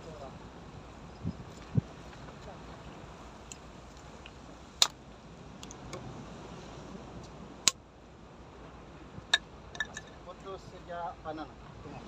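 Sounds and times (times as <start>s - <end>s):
wind and sea hiss: 0.0s - 12.0s.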